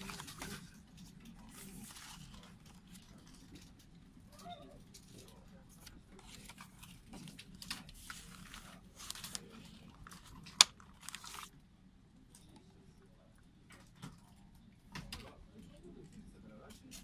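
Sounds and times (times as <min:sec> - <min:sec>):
paper pages rustling: 0:00.0 - 0:03.8, 0:05.0 - 0:11.5.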